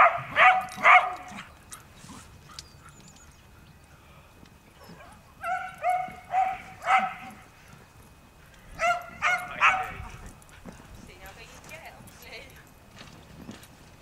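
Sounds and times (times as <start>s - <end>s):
dog yapping: 0.0s - 1.5s, 4.8s - 7.4s, 8.8s - 10.2s.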